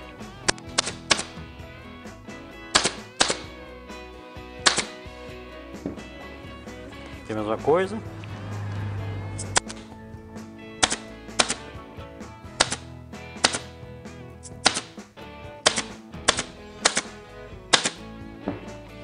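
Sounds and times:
pneumatic stapler shots: 0.4 - 1.4, 2.7 - 3.5, 4.6 - 5.0, 9.4 - 9.9, 10.8 - 11.6, 12.6 - 12.8, 13.4 - 13.7, 14.4 - 15.0, 15.6 - 18.0.

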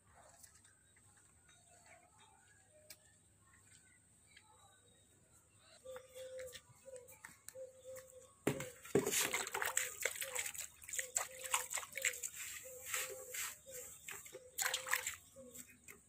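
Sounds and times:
water splashing in a metal tub: 9.0 - 13.0, 14.0 - 15.4.

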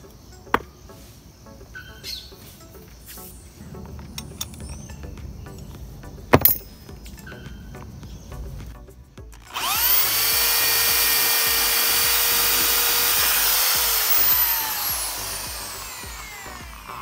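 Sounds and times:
electric drill boring into wood: 9.3 - 17.0.

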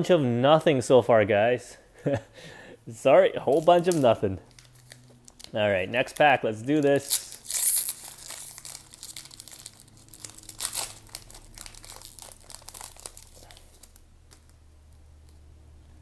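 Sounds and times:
card pack wrapper tearing and crinkling: 3.4 - 14.6.

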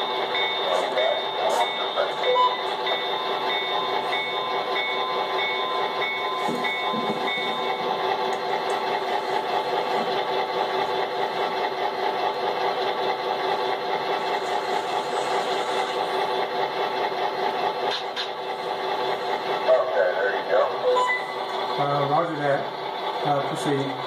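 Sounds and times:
model locomotive engine drone: 0.0 - 24.0
bell dinging: 0.4 - 7.8.

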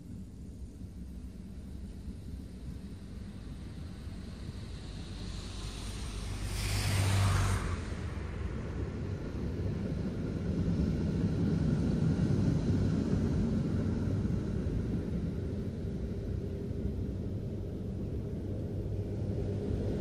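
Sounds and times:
car passing by: 4.1 - 11.5.

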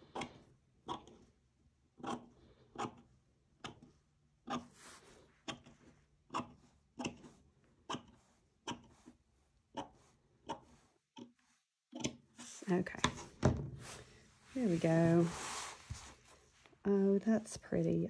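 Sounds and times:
lace rustling: 12.4 - 16.9.

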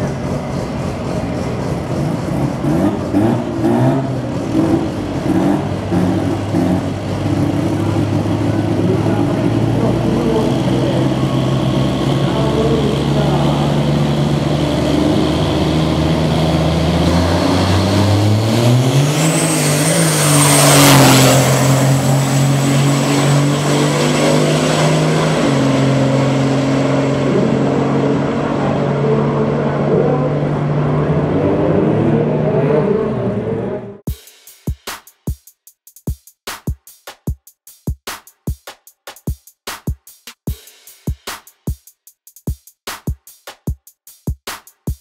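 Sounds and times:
diesel truck engine launching: 0.0 - 34.0.

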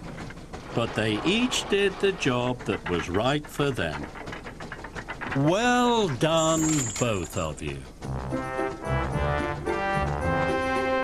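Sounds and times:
background music: 8.0 - 11.0.

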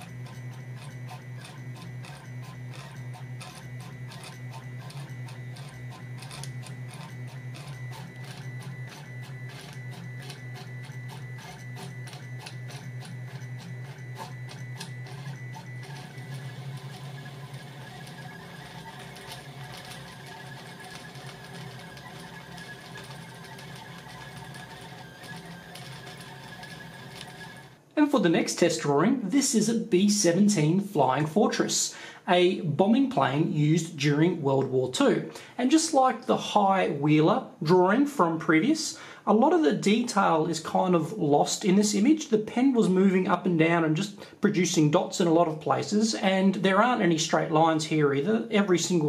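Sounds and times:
stepper motors whirring: 0.0 - 27.8.

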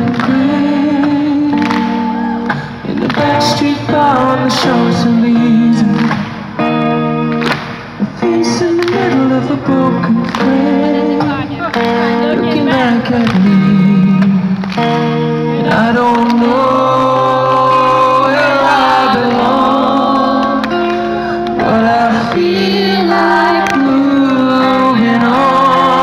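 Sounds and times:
person singing: 0.0 - 6.7, 8.0 - 26.0
synth-pop band playing: 0.0 - 26.0.

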